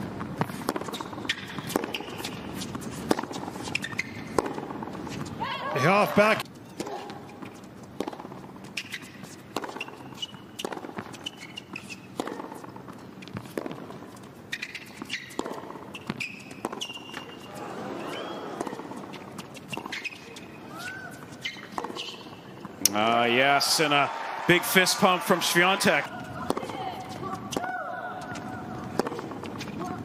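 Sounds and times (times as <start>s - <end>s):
shoes squeaking on court: 0.0s - 22.9s, 23.8s - 30.0s
tennis ball bouncing: 0.0s - 23.0s, 24.2s - 30.0s
racquet hitting tennis ball: 0.3s - 4.9s, 8.0s - 20.2s, 21.2s - 23.0s, 23.8s - 30.0s.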